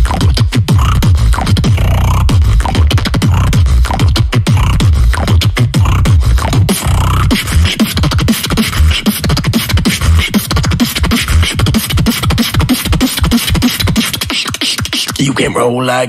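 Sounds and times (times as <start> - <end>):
deep bass notes: 0.0 - 12.4
human beatboxing: 0.0 - 16.0.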